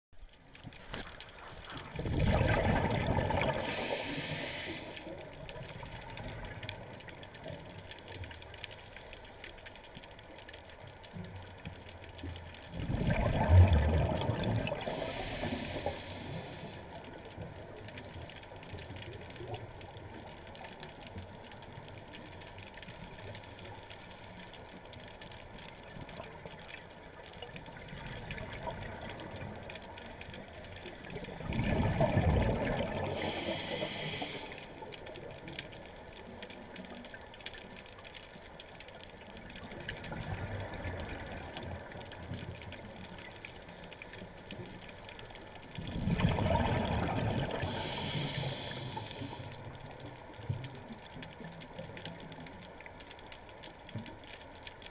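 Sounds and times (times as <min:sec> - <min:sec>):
underwater watery hiss: 0:01.0 - 0:06.8, 0:07.4 - 0:10.1, 0:13.0 - 0:20.8, 0:27.9 - 0:35.2, 0:43.2 - 0:45.6, 0:46.2 - 0:49.9
scuba bubbles rushing: 0:01.8 - 0:04.6, 0:12.7 - 0:16.2, 0:31.2 - 0:34.0, 0:45.8 - 0:48.8.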